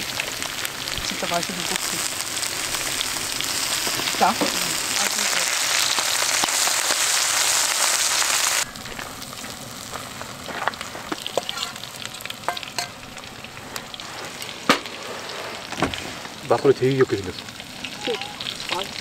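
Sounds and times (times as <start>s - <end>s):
food sizzling on a griddle: 0.0s - 19.0s
utensils clinking on a pan: 11.3s - 11.8s, 12.4s - 13.0s.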